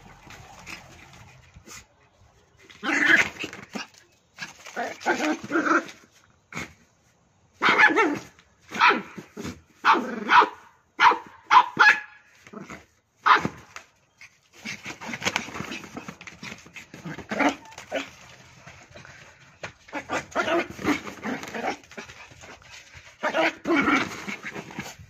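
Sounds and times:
puppy barking: 0:07.6 - 0:09.2, 0:09.8 - 0:12.2, 0:13.2 - 0:13.6.

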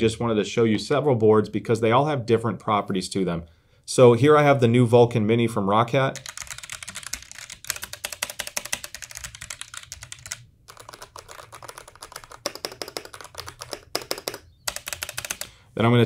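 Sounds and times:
mechanical keyboard typing: 0:06.2 - 0:15.5.

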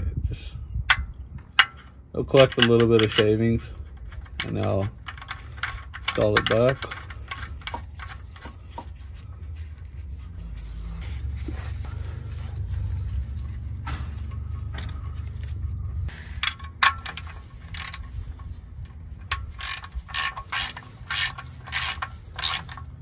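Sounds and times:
low hum: 0:00.0 - 0:23.0
ratchet wrench clicking: 0:00.9 - 0:08.9, 0:16.1 - 0:23.0.

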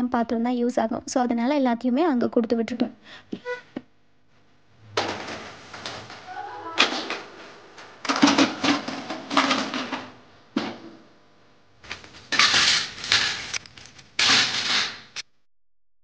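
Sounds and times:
metal kitchen vessels clattering: 0:04.9 - 0:10.9.

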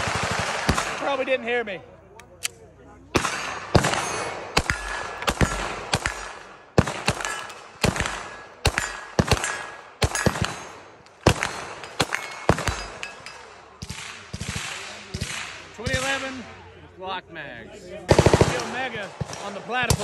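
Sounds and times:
pistol firing rapid shots: 0:00.0 - 0:01.2, 0:03.2 - 0:13.1, 0:13.8 - 0:16.2, 0:18.1 - 0:20.0.

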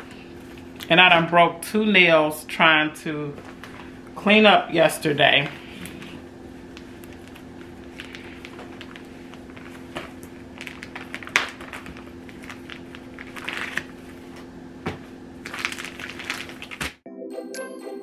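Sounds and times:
plastic packaging crinkling: 0:05.6 - 0:14.6, 0:15.4 - 0:17.0.

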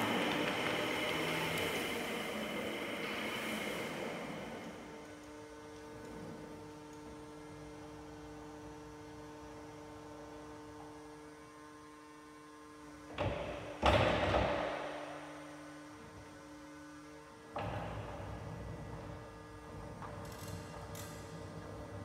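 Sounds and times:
forklift hydraulic pump humming: 0:00.0 - 0:07.2.

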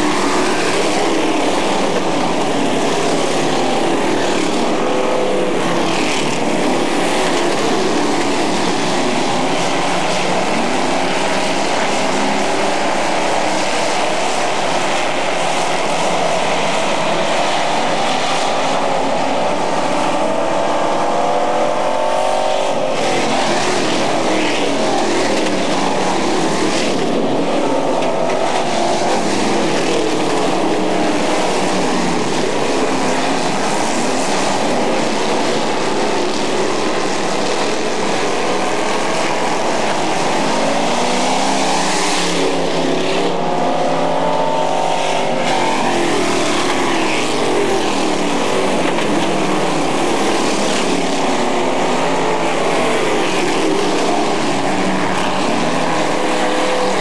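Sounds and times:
racing truck engines at full throttle: 0:00.0 - 0:57.0.

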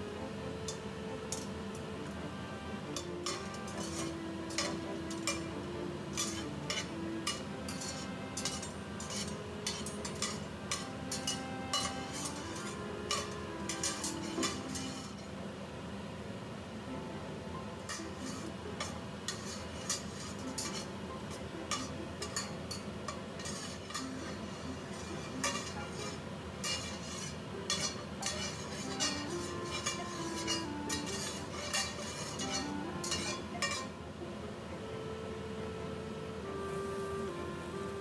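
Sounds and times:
faint background music: 0:00.0 - 0:15.4, 0:16.5 - 0:38.0
metal spatula scraping frying pan: 0:00.7 - 0:01.5, 0:02.8 - 0:15.3, 0:17.8 - 0:34.0.

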